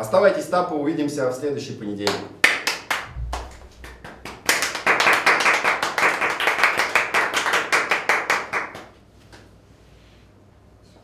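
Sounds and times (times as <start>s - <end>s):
people clapping: 2.1s - 9.5s.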